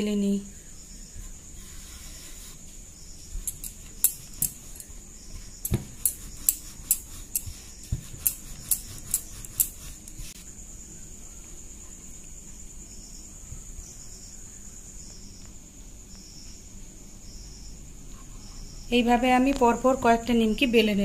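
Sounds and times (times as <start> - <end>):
rolling pin clicking on board: 5.6 - 10.2.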